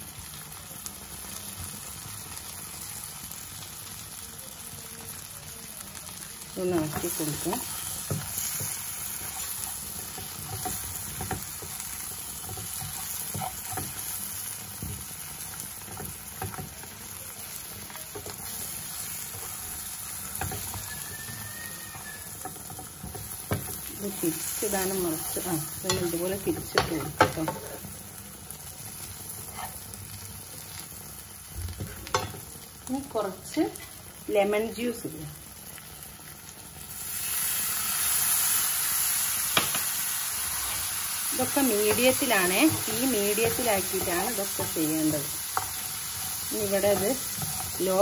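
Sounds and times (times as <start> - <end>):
prawns sizzling in a pan: 0.0 - 48.0
spatula scraping a pan: 6.8 - 16.8, 18.1 - 27.8, 29.0 - 29.9, 40.6 - 48.0.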